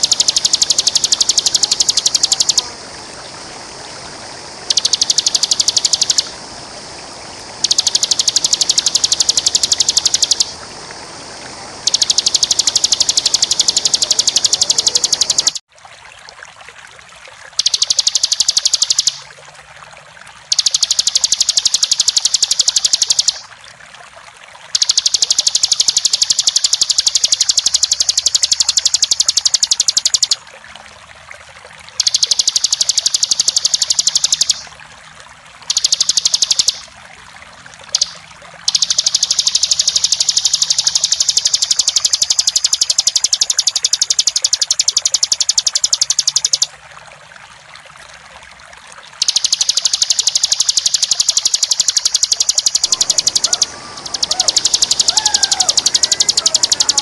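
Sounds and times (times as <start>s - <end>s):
bird rattling trill: 0.0s - 2.7s, 4.6s - 6.4s, 7.6s - 10.6s, 11.8s - 15.6s, 17.6s - 19.2s, 20.5s - 23.4s, 24.8s - 30.4s, 32.0s - 34.7s, 35.7s - 36.9s, 37.9s - 46.7s, 49.2s - 57.0s
flowing water: 0.0s - 57.0s.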